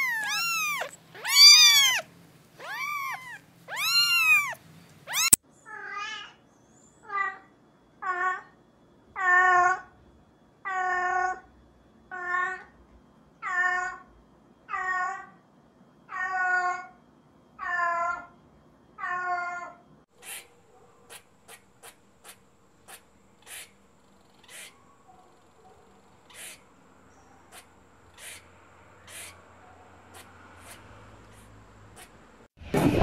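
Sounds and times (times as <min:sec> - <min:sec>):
cat meowing: 0:00.0 - 0:05.4.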